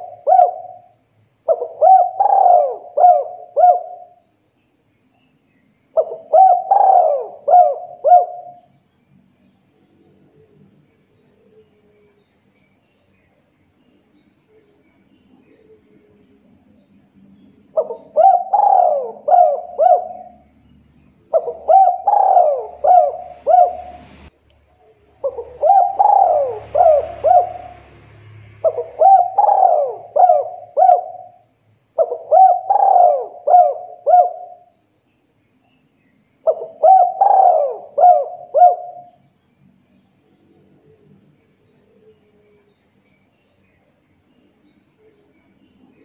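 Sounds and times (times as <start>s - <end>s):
dove cooing: 0.0s - 4.2s, 6.0s - 8.7s, 17.7s - 20.5s, 21.3s - 24.3s, 25.1s - 31.4s, 32.0s - 34.7s, 36.4s - 39.2s.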